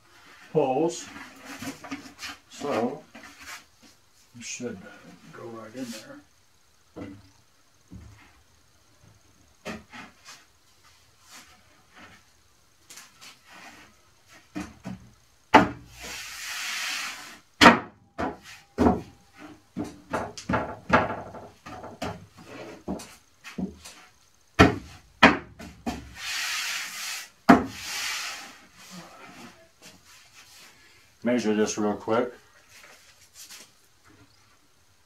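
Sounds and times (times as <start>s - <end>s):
board scraping against wood: 0.2s - 3.9s, 13.0s - 14.8s, 15.9s - 17.4s, 21.3s - 24.2s, 25.8s - 30.8s
sharp wooden knocks and thumps: 14.5s - 15.9s, 17.6s - 23.8s, 24.6s - 26.1s.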